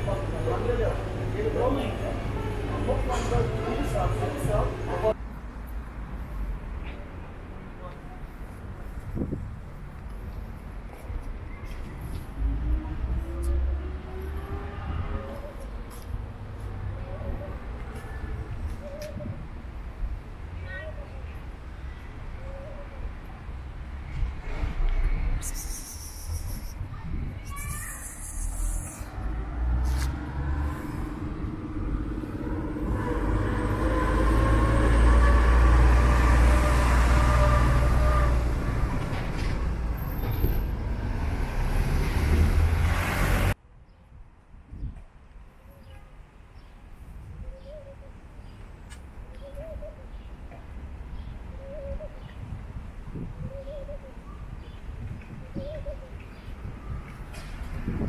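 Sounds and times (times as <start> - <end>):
dove cooing: 49.4 - 50.2, 51.5 - 52.3, 53.4 - 54.2, 55.5 - 56.2.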